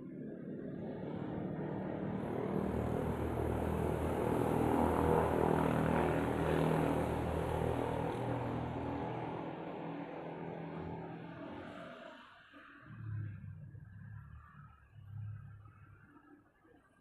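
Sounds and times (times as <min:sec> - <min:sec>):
engine passing by: 0:00.6 - 0:12.2.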